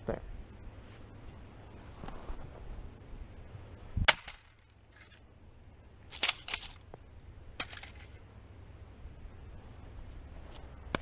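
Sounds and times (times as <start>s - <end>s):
tomahawk striking metal casing: 4.1s - 5.2s, 7.6s - 8.2s.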